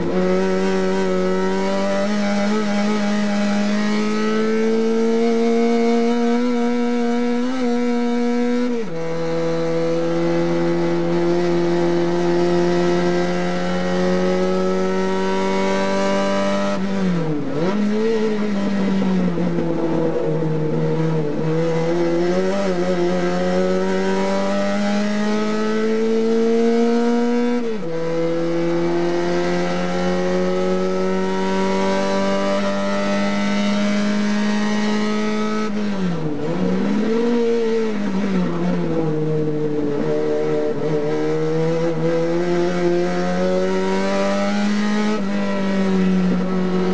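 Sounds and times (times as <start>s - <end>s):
race car engine revving: 0.0s - 46.9s.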